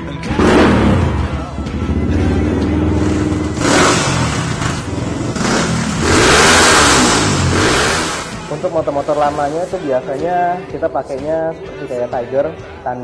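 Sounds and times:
motorcycle engine revving: 0.2s - 10.7s.

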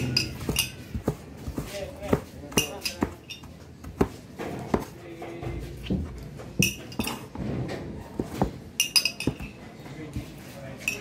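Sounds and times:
metal spoon clinking against cup: 8.8s - 9.6s.

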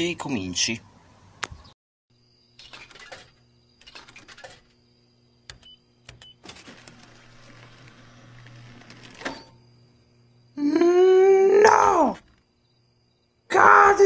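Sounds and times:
vending machine spiral motor running: 5.5s - 10.6s.

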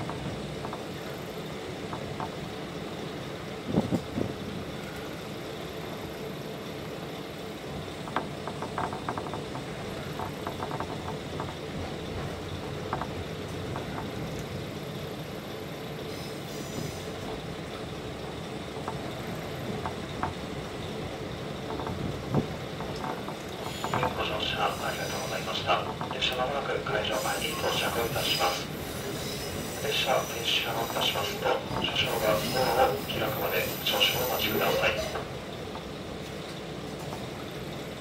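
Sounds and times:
diesel railcar engine running: 0.0s - 38.0s
wheels clicking over rail joints: 7.8s - 14.6s, 18.7s - 24.3s.

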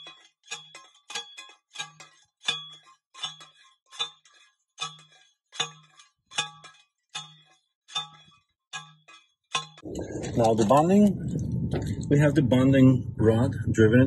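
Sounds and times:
ringing metallic clanks of rod driver: 0.0s - 9.8s.

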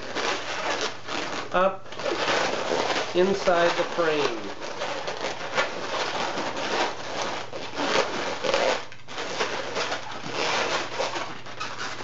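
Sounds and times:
balloons rubbing and scraping: 0.0s - 12.0s.

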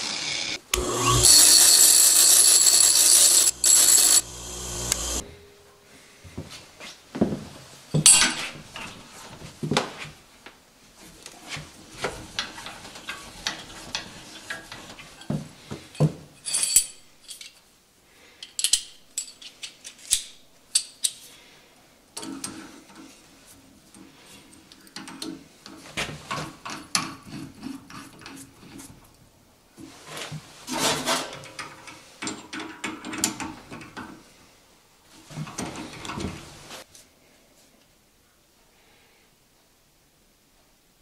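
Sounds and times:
metal clinks and clatter: 16.4s - 17.6s.

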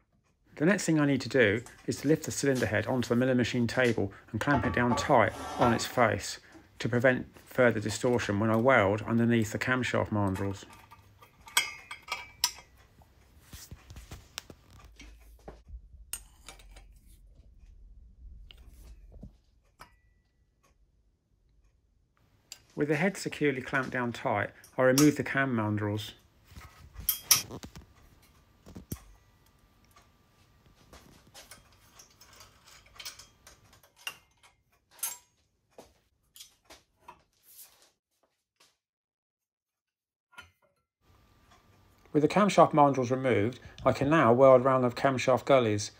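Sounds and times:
metallic clicks and scrapes: 31.0s - 35.3s.

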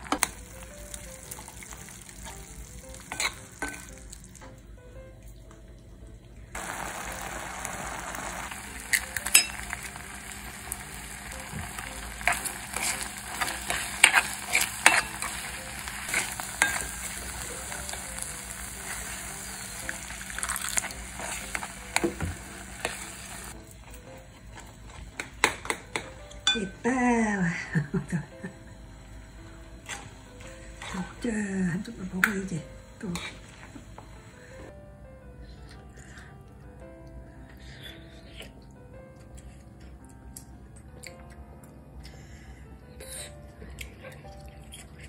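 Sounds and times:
porridge sizzling in a pot: 0.0s - 4.5s, 6.5s - 28.2s, 28.9s - 34.7s.

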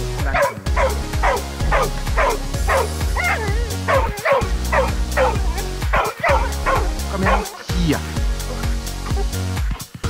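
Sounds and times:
background music: 0.0s - 10.0s
dog whining and yipping: 0.4s - 7.4s, 9.0s - 9.4s.

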